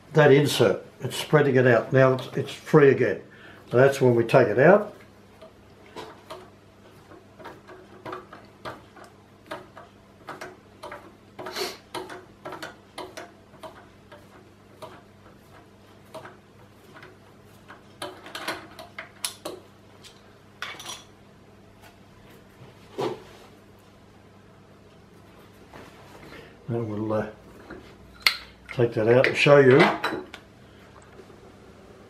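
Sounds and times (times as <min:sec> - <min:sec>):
faint steady hum: 0:00.0 - 0:32.0
metal tools clicking and clinking: 0:18.0 - 0:21.1.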